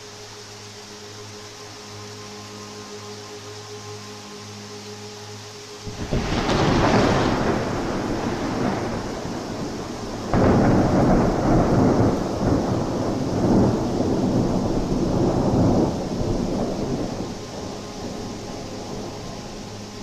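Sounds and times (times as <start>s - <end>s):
thunder clap rumbling: 5.9s - 19.4s.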